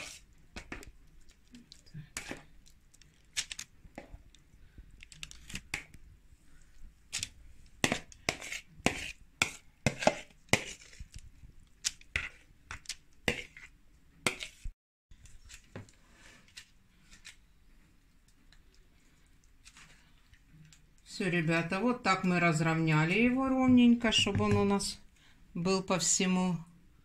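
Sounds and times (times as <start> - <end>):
utensil scraping a bowl: 0.0 - 0.3, 7.8 - 11.0, 13.3 - 14.7.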